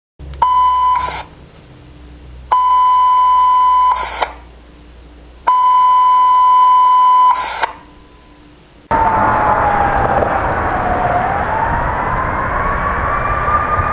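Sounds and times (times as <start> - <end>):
high radio alert beeps: 0.4 - 1.3, 2.5 - 4.3, 5.5 - 7.8
radio noise bursts: 0.7 - 1.3, 3.3 - 4.4, 6.0 - 7.9.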